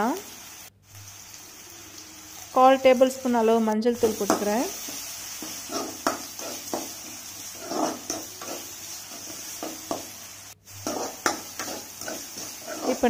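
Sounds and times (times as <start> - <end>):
onions sizzling in oil: 0.0 - 13.0
metal spatula scraping pan: 4.0 - 10.1, 10.7 - 13.0.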